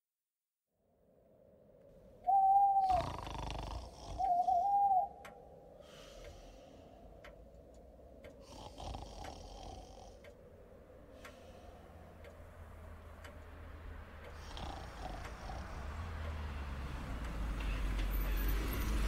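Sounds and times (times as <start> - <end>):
owl hooting: 2.2 - 6.4
slow snoring breaths: 2.8 - 4.7, 5.7 - 7.6, 8.2 - 10.4, 11.0 - 12.4, 14.2 - 16.7.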